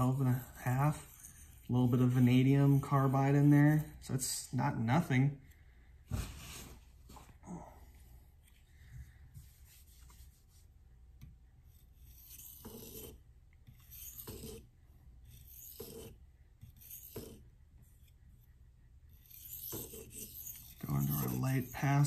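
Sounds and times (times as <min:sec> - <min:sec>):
knife rasping on whetstone: 0:00.0 - 0:03.2, 0:11.7 - 0:18.2, 0:19.1 - 0:22.0.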